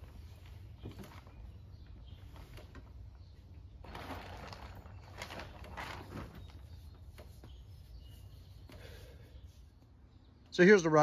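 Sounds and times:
faint bird calls: 0.2 - 10.5
tarp rustling and scraping: 3.8 - 7.5.

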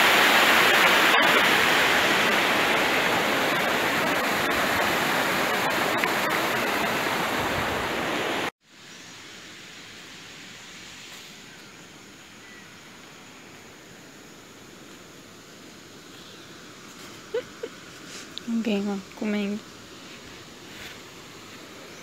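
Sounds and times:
loud rushing noise: 0.0 - 8.5
outdoor background hiss: 0.0 - 22.0.

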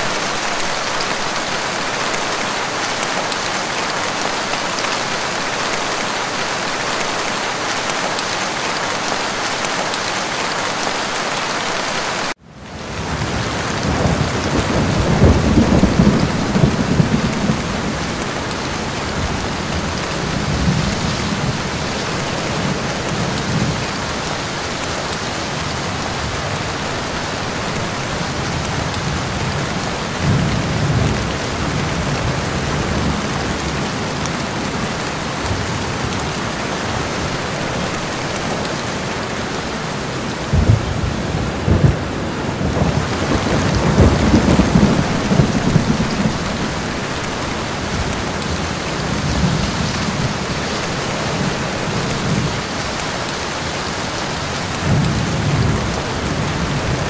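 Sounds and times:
steady rain: 0.0 - 57.0
low thunder rumbles: 12.8 - 24.0, 40.4 - 52.6
rolling thunder: 12.9 - 23.9, 40.4 - 50.5
sharp thunderclaps: 13.2 - 18.4, 40.5 - 46.8.

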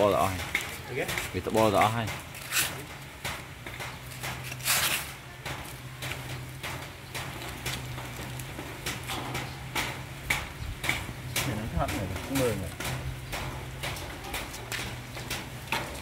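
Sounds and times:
puppies scuffling and eating: 0.0 - 16.0
rustling scrape: 2.2 - 2.9, 4.2 - 5.2.

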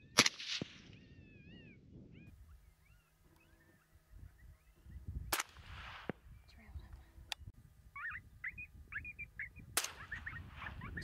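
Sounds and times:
rifle crack with echo: 0.1 - 0.9, 5.3 - 6.2, 9.8 - 10.7
high yipping calls: 7.9 - 11.0.

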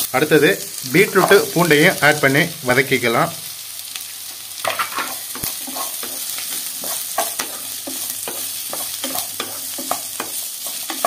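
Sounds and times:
vegetables sizzling in oil: 0.0 - 11.0
utensil scraping a pan: 4.6 - 11.0.

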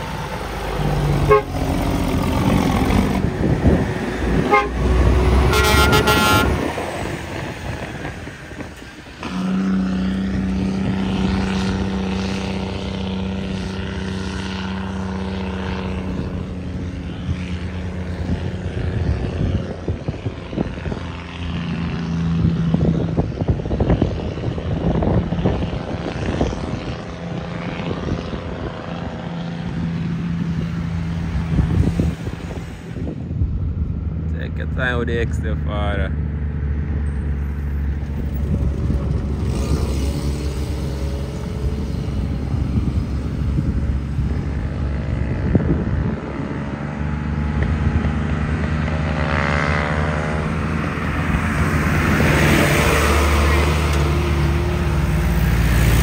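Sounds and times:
diesel truck engine droning: 0.0 - 56.0
truck horn blast: 1.2 - 1.7, 4.4 - 6.8, 9.2 - 10.3.

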